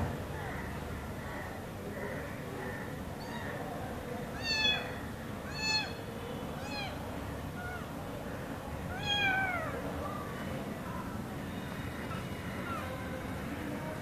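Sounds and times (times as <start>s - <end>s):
kittens meowing: 3.2s - 3.6s, 4.3s - 7.9s, 8.9s - 9.8s.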